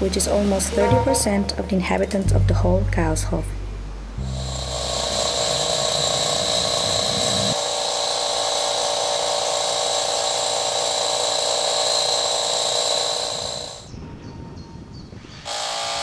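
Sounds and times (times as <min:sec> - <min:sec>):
low hum: 0:00.0 - 0:07.6
power tool whining and grinding: 0:04.2 - 0:13.9, 0:15.5 - 0:16.0.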